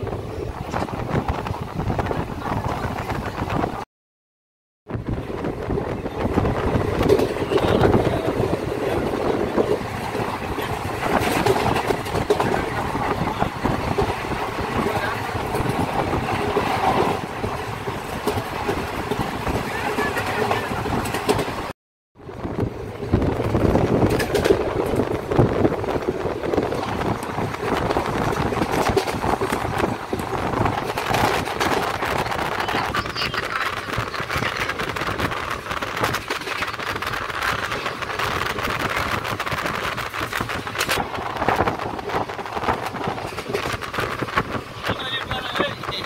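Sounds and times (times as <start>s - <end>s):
train running noise inside carriage: 0.0s - 3.8s, 4.9s - 46.0s
wind at open window: 0.0s - 3.9s, 4.8s - 46.0s
wheels clattering on track: 5.0s - 21.7s, 22.4s - 46.0s.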